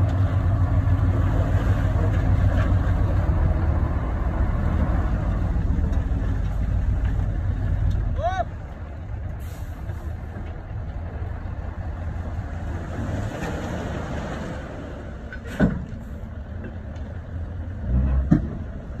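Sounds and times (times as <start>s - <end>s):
truck engine running: 0.0s - 13.2s.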